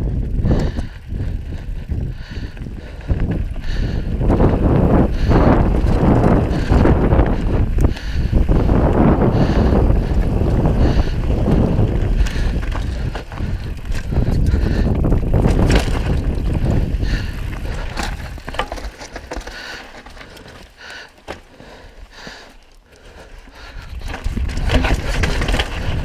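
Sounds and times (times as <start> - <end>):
wind buffeting microphone: 0.0 - 20.3, 23.5 - 26.0
bike clicks and rattles: 0.0 - 26.0
tyres rumbling over rock: 3.2 - 21.6, 23.8 - 26.0.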